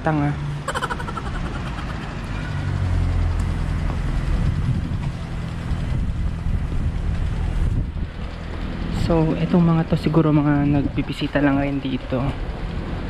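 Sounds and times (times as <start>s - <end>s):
traffic engine rumble: 0.0s - 13.0s.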